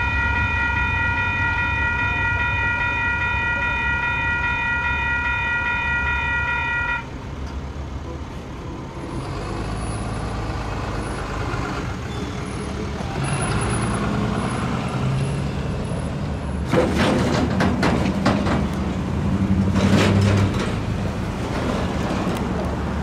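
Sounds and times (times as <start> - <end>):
vehicles rattling over rails: 0.0 - 23.0
vehicle engines idling: 7.0 - 23.0.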